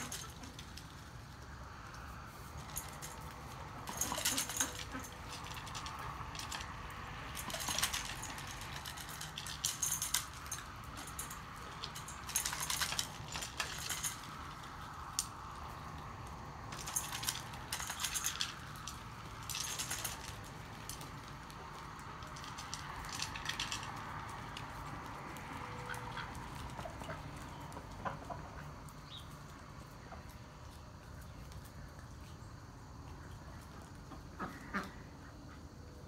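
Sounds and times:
duck bills clinking on metal bowls: 0.0s - 1.0s, 2.6s - 14.8s, 16.7s - 21.1s, 21.7s - 24.0s, 25.8s - 29.2s, 34.3s - 35.0s.

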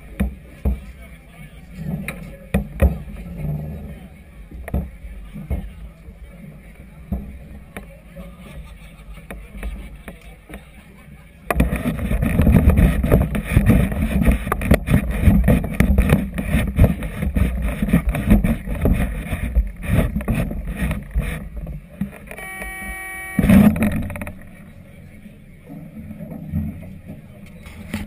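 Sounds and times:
steady pitched tone: 22.1s - 27.1s.

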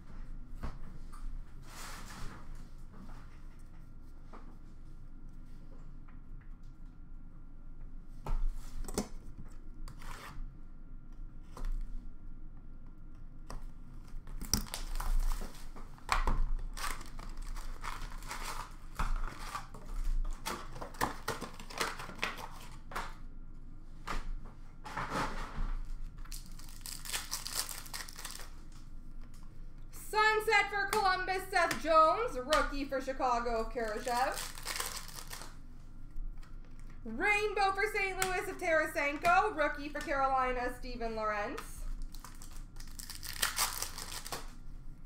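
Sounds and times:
card wrappers crinkling and tearing: 14.4s - 15.7s, 16.4s - 22.9s, 26.2s - 28.8s, 33.7s - 35.6s, 41.9s - 44.6s.

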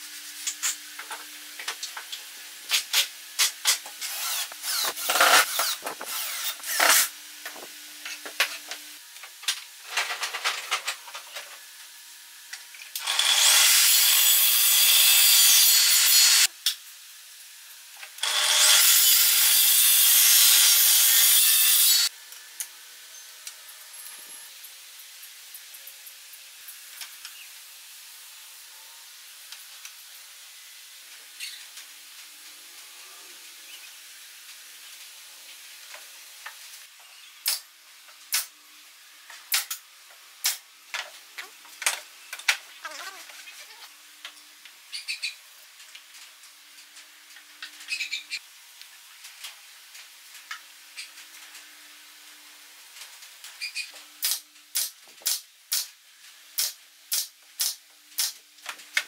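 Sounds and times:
pneumatic nail gun firing: 2.7s - 7.1s, 13.0s - 16.5s, 18.2s - 22.0s, 39.5s - 39.8s, 54.2s - 55.9s, 56.6s - 58.4s
nail gun firing into wood: 56.6s - 58.4s.

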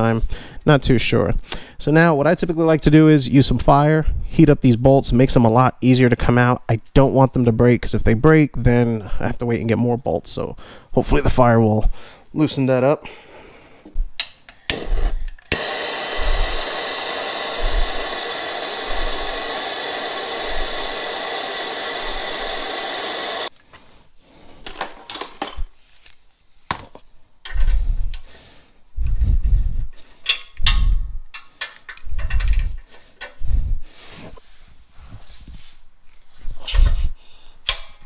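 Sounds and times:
torch flame hissing: 14.6s - 23.5s
wrench clicks and scrapes: 30.0s - 33.4s.

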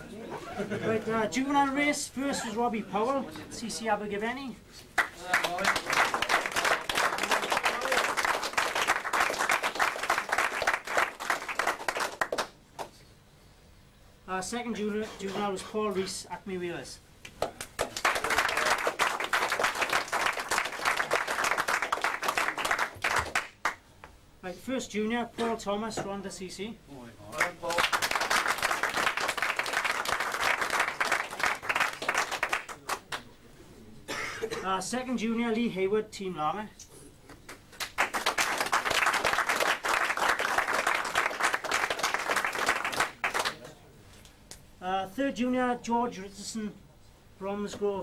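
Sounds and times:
people applauding: 5.0s - 12.9s, 17.3s - 23.8s, 27.4s - 33.3s, 37.5s - 43.7s
people clapping: 5.0s - 13.0s, 17.2s - 24.1s, 27.3s - 33.3s, 37.3s - 43.8s.

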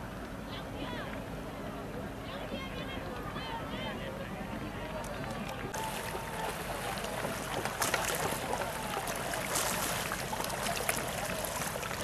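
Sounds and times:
faint distant voices: 0.4s - 12.0s
paddle strokes splashing water: 5.1s - 12.0s
water washing: 5.6s - 12.0s.

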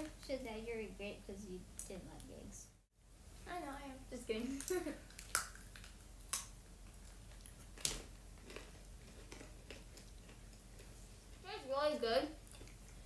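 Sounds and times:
crackers crunching while chewed: 4.6s - 11.4s, 12.4s - 13.0s.

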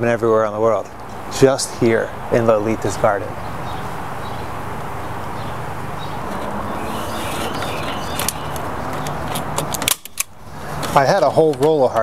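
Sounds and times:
outdoor background noise: 0.0s - 12.0s
faint bird chirps: 5.4s - 9.2s.

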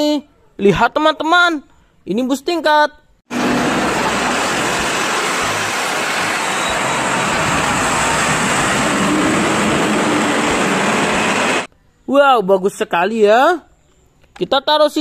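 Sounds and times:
bus passing close by: 3.3s - 11.7s
city street traffic: 3.3s - 11.7s.

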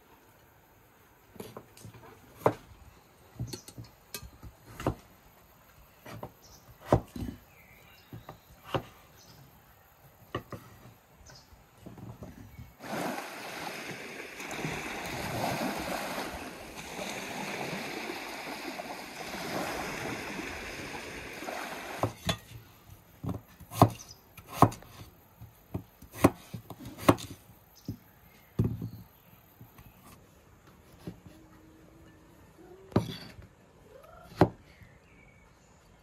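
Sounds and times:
waves washing onto shore: 12.8s - 22.2s
knife chopping on wooden board: 23.7s - 24.9s, 25.7s - 27.3s.

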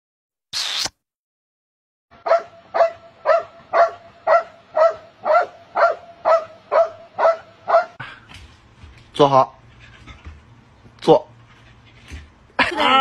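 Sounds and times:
dog barking: 2.2s - 8.0s.

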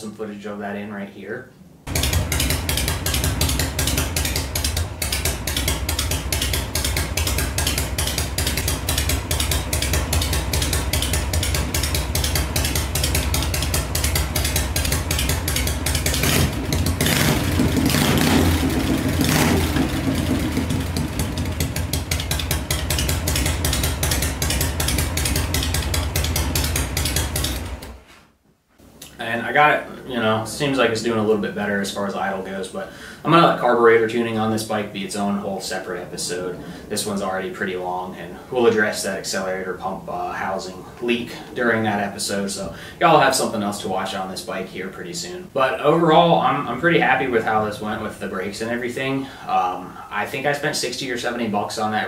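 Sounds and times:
motorcycle engine idling: 1.9s - 28.0s.

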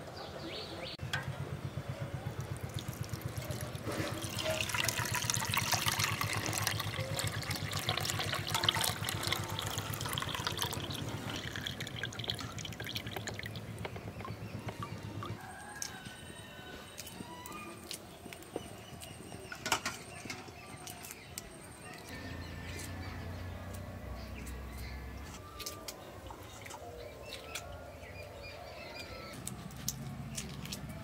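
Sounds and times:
liquid trickling into metal bowl: 2.4s - 15.4s.

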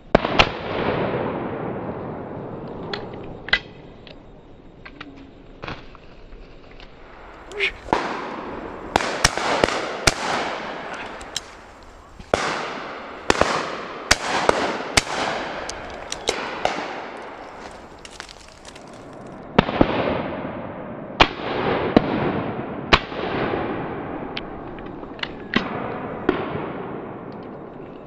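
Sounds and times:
gunshot echo rolling away: 7.1s - 17.9s
shotguns firing: 7.1s - 18.0s.

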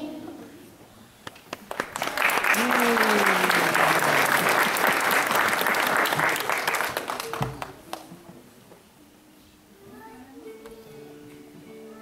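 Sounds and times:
audience clapping: 1.3s - 8.2s.

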